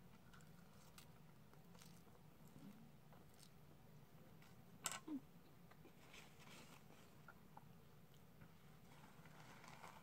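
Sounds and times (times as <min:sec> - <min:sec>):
faint eating ticks and rustles: 0:00.0 - 0:10.0
paper wrapper rustling: 0:08.9 - 0:10.0.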